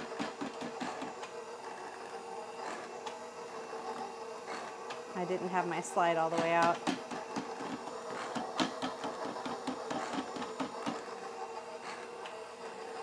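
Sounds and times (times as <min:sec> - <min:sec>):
mixer motor hum: 0:00.0 - 0:13.0.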